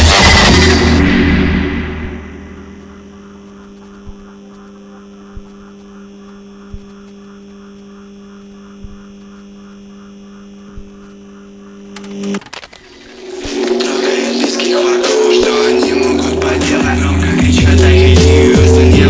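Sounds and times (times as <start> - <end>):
fast fluttering pulse: 0.0 - 14.4
low electrical hum: 0.1 - 16.4
soft low thumps: 1.0 - 11.9.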